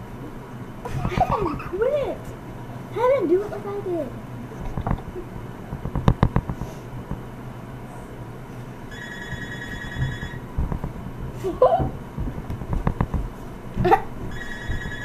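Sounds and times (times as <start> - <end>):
phone ringing electronic trill: 8.9 - 10.5, 14.3 - 15.0.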